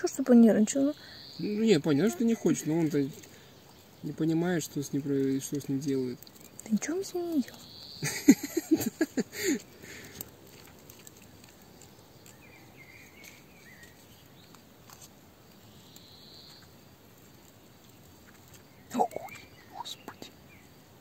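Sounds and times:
faint insect chirping: 0.0s - 21.0s
soft rustles: 8.3s - 20.3s.

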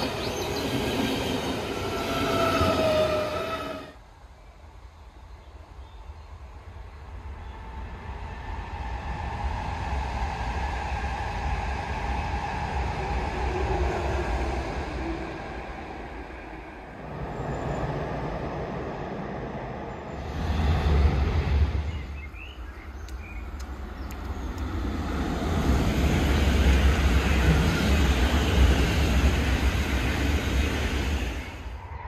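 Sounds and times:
train wheels rumbling on rails: 0.0s - 4.0s, 6.6s - 31.8s.

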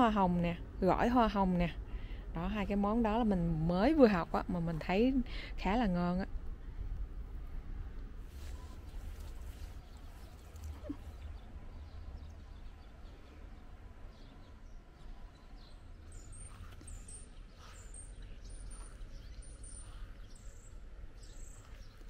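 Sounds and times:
low outdoor rumble: 0.0s - 22.0s
small bird chirping: 8.6s - 22.0s.

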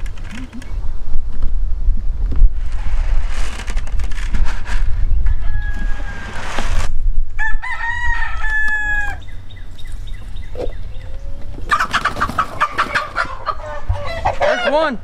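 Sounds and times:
rooster crowing: 5.2s - 6.5s, 7.4s - 9.4s, 12.9s - 14.8s
chickens squawking: 7.8s - 15.0s
chickens clucking: 9.0s - 15.0s.

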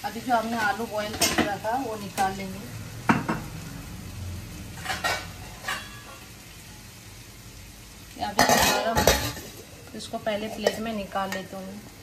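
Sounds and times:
pan sizzling: 0.0s - 12.0s
utensil clinking on metal pot: 8.4s - 9.6s, 10.4s - 11.5s.

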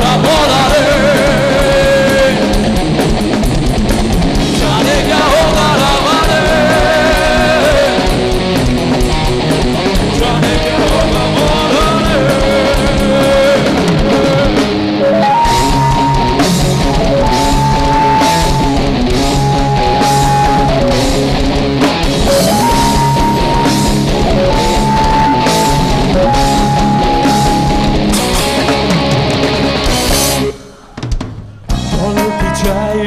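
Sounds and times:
live rock band playing: 0.0s - 33.0s
lead melody of held notes: 15.0s - 29.6s.

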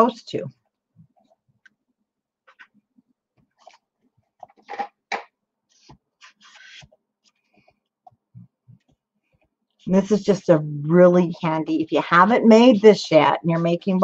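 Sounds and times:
sharp paper sounds: 5.7s - 6.9s
paper rustling: 5.7s - 7.9s.

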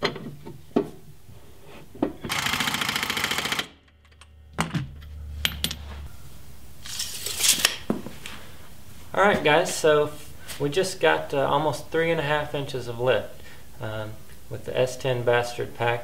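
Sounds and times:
pneumatic impact wrench rattle: 2.3s - 5.7s
low hum: 3.6s - 9.1s.

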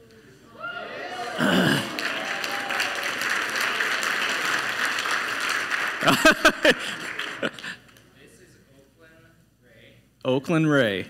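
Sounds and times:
congregation applauding: 1.0s - 8.0s.

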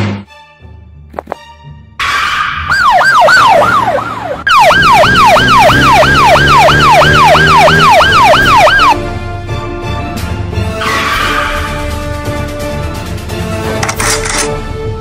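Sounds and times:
police siren yelping: 2.0s - 9.0s.

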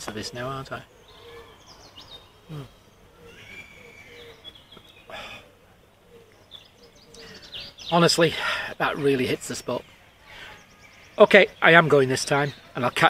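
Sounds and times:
small birds chirping: 0.0s - 13.0s
breathy exhale: 5.1s - 5.5s.

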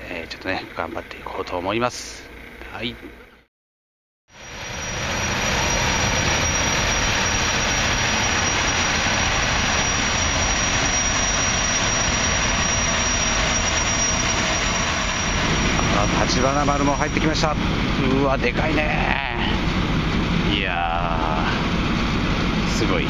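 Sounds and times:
gas turbines rushing: 4.3s - 23.0s
thin high whine: 4.3s - 23.0s.

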